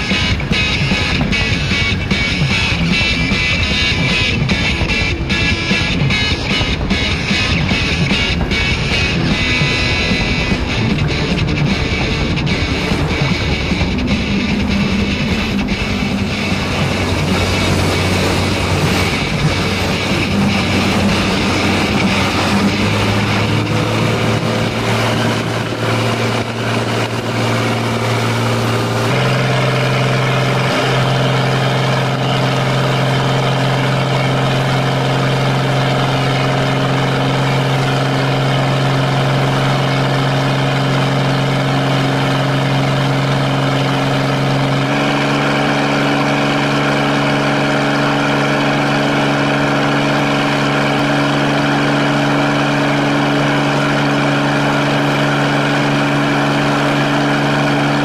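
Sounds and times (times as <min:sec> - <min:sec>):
motorboat engine running: 0:00.0 - 0:58.0.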